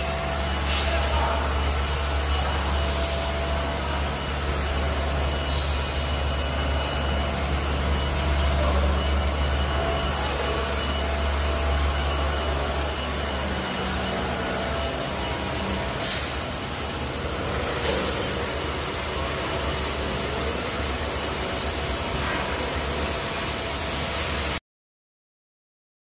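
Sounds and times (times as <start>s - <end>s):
thin high whine: 0.0s - 24.6s
vibrating motor low hum: 0.0s - 24.6s.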